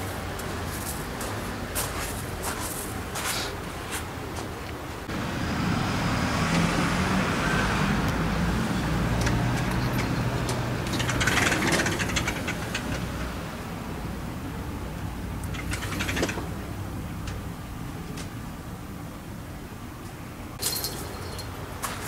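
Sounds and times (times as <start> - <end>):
vehicle passing by: 5.0 - 17.1.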